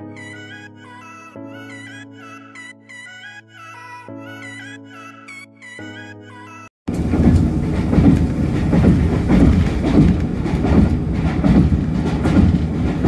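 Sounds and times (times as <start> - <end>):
train rumbling on rails: 6.9 - 13.0.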